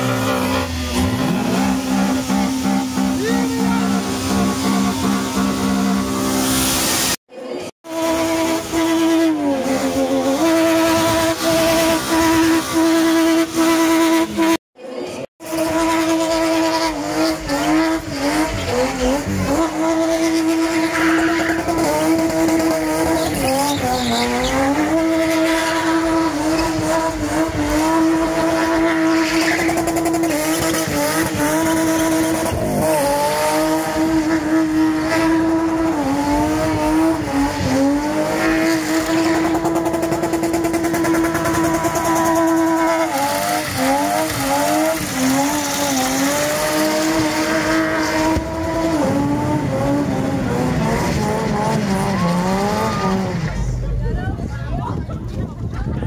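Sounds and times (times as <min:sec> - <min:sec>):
car engine revving high: 0:00.0 - 0:07.2, 0:07.8 - 0:14.6, 0:15.4 - 0:53.8
tyres squealing: 0:23.0 - 0:26.8.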